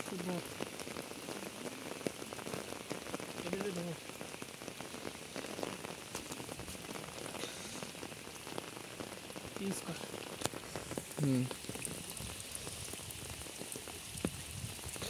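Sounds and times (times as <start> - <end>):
rain pattering: 0.0 - 15.0.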